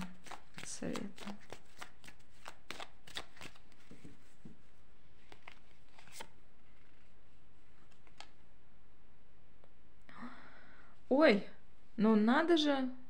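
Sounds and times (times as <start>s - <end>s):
cards clicking and flicking: 0.0s - 3.9s.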